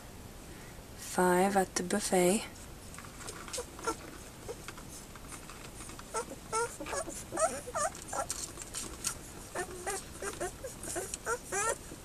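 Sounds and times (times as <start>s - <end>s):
puppies squeaking and whimpering: 3.5s - 4.7s, 6.1s - 11.9s.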